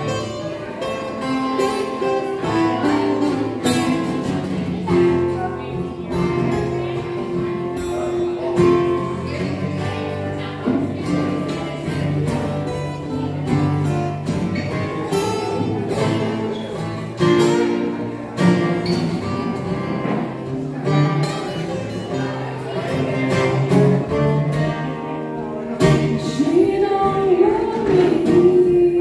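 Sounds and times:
acoustic guitars strummed: 0:00.0 - 0:29.0
woman singing: 0:25.8 - 0:29.0.

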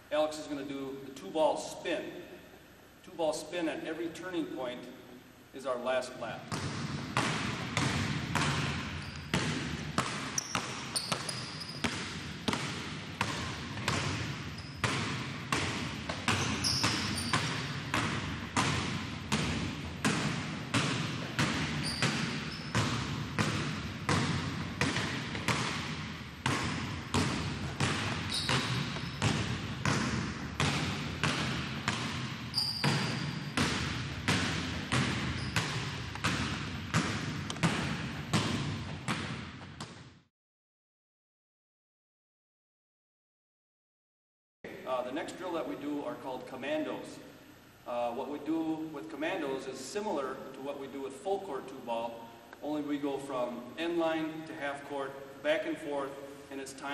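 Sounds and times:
basketballs bouncing on gym floor: 0:06.4 - 0:40.2
sneaker squeaks: 0:06.5 - 0:40.1.

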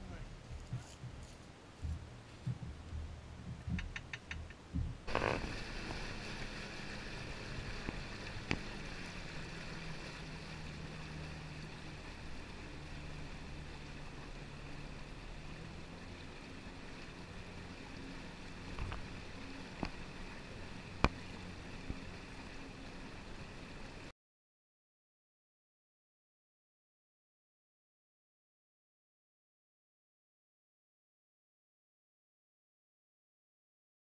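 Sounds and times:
boat motor hum: 0:00.0 - 0:24.1
water rushing along hull: 0:00.0 - 0:24.1
low knocks: 0:01.8 - 0:06.0.

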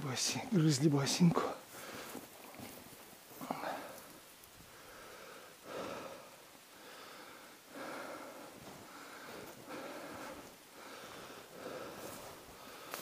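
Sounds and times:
person breathing hard: 0:01.7 - 0:02.3, 0:03.4 - 0:13.0.

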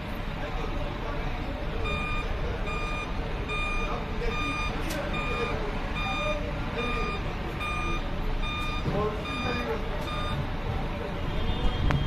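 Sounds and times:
diesel engine running: 0:00.0 - 0:12.0
reversing alarm beeping: 0:01.8 - 0:10.6.

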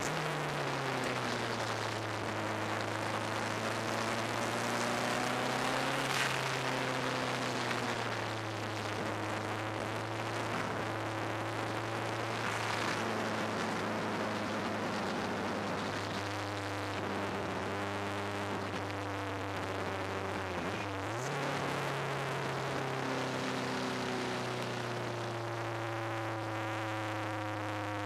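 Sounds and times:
race car engine revving: 0:00.0 - 0:27.8.

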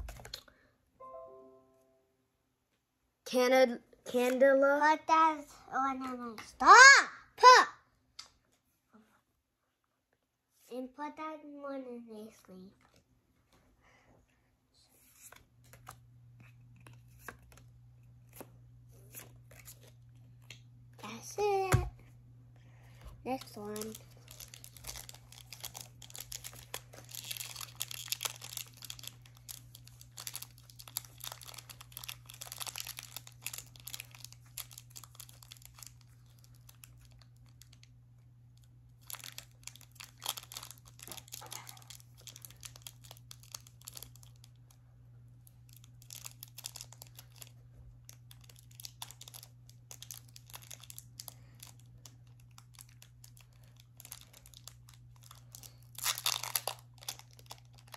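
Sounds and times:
foil wrapper tearing and crinkling: 0:23.3 - 0:37.9, 0:38.6 - 0:44.7, 0:45.4 - 0:57.9.

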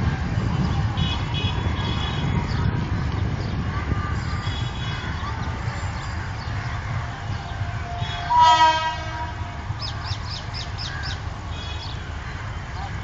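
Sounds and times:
steady low rumble: 0:00.0 - 0:13.0
locomotive air horn blast: 0:07.5 - 0:09.7.

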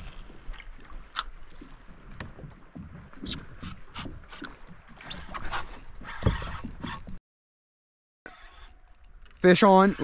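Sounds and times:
water splashing against kayak hull: 0:00.0 - 0:07.0.

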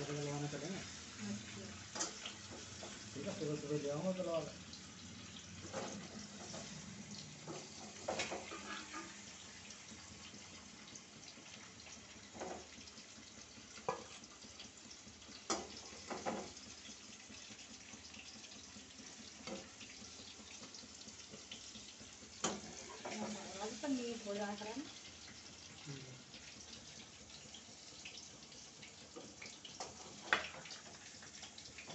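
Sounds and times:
running water hiss: 0:00.0 - 0:09.7, 0:25.7 - 0:27.1.

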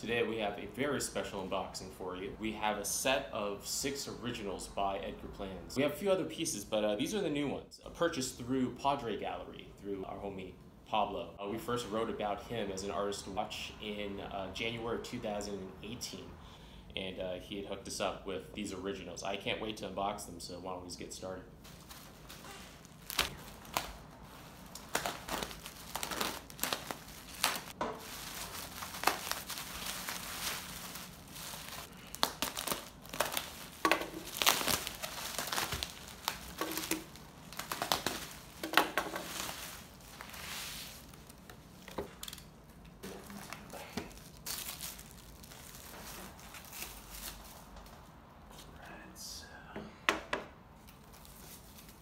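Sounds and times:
bubble wrap crinkling and crackling: 0:21.6 - 0:48.1, 0:50.8 - 0:52.0.

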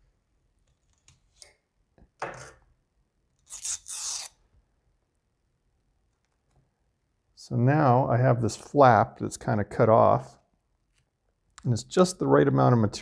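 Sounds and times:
knife scraping vinyl film: 0:03.4 - 0:04.4.

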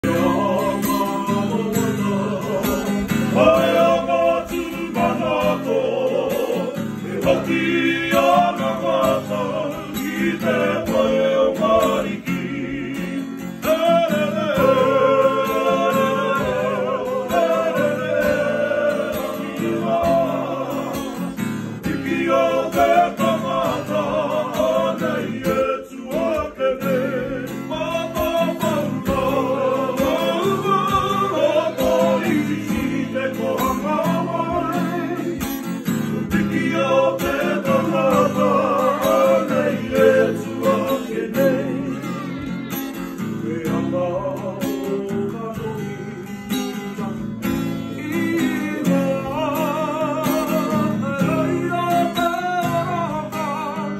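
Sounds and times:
men singing together: 0:00.0 - 0:53.9
strummed acoustic guitar: 0:00.0 - 0:53.9.

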